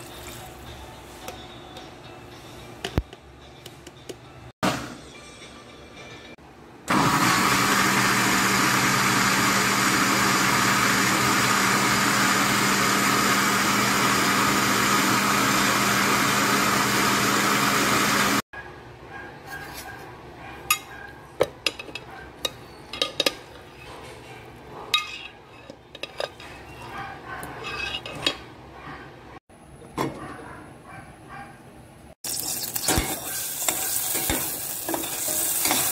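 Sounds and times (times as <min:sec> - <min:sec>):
electric blender running: 0:06.9 - 0:18.4
metal spoon scraping blender jar: 0:25.0 - 0:28.5.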